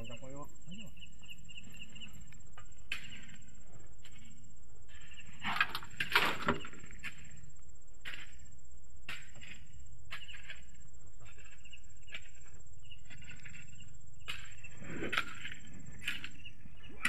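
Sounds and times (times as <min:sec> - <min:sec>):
night insects trilling: 0:00.0 - 0:17.0
scrapes and knocks in mud: 0:02.9 - 0:04.3, 0:04.9 - 0:07.4, 0:08.0 - 0:08.5, 0:09.1 - 0:17.0.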